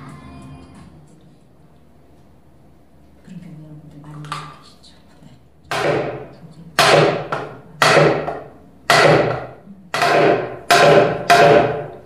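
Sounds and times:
hammer striking wood: 0:05.7 - 0:12.0.

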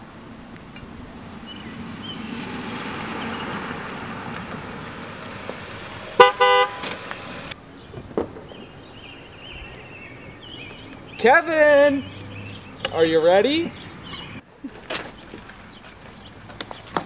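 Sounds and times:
car driving up: 0:00.7 - 0:07.6
car horn honking: 0:06.2 - 0:07.1.

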